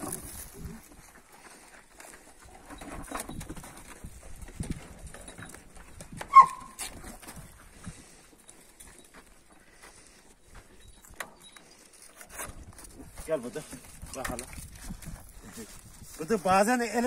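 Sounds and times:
footsteps on dirt: 0.0s - 2.9s, 3.5s - 17.0s
dog yelping: 6.3s - 6.8s.

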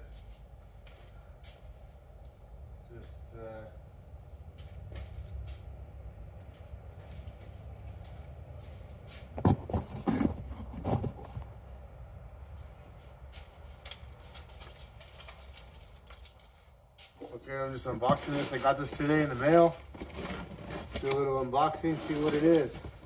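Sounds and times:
handling knocks and scrapes: 7.0s - 11.6s, 12.5s - 23.0s.

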